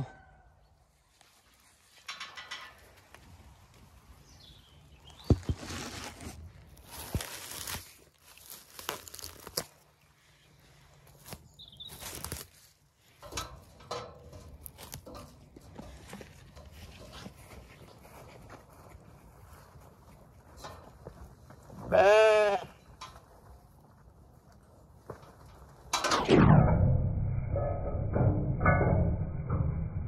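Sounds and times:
rustling in long grass: 0:02.8 - 0:13.2.

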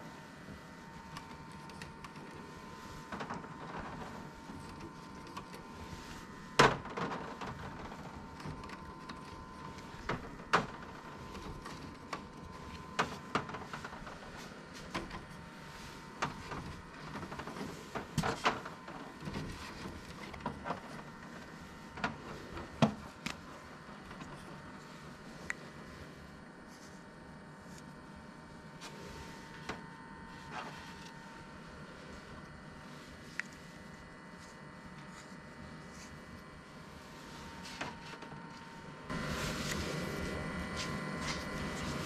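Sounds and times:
faint steady hum: 0:00.0 - 0:42.0.

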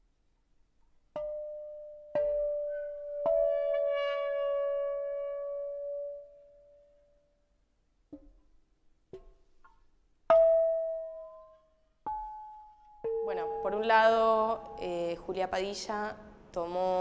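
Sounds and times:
bell-like music notes: 0:10.3 - 0:15.5.

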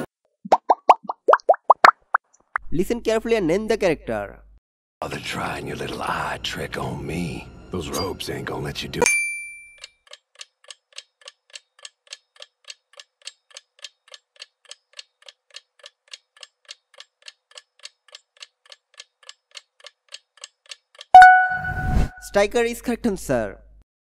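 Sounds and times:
clock ticking: 0:09.8 - 0:21.6.

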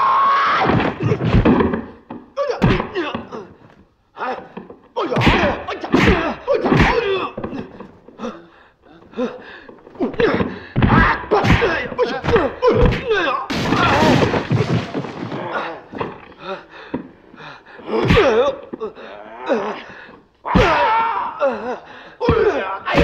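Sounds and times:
fighting yells and pained cries: 0:00.0 - 0:01.0, 0:04.2 - 0:07.8, 0:10.0 - 0:14.4, 0:17.8 - 0:23.0
punch and kick impacts: 0:05.2 - 0:07.6, 0:10.2 - 0:14.9, 0:20.6 - 0:20.9.

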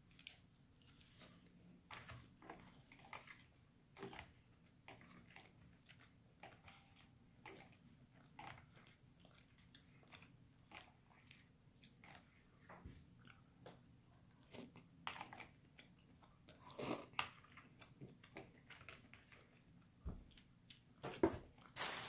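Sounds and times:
chewing and lip-smacking: 0:00.0 - 0:12.5, 0:13.2 - 0:20.9.

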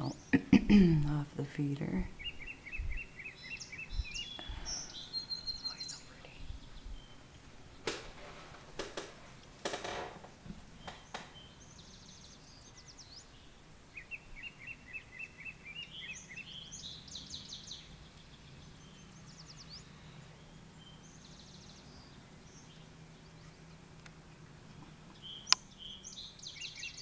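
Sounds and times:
faint low hum: 0:00.0 - 0:27.0
small birds chirping: 0:00.0 - 0:27.0
high rapid bird trills: 0:02.0 - 0:08.2.

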